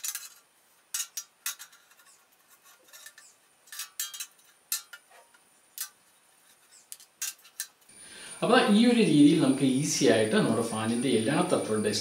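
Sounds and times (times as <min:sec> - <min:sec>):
duster scraping fan blades: 0:00.0 - 0:07.9.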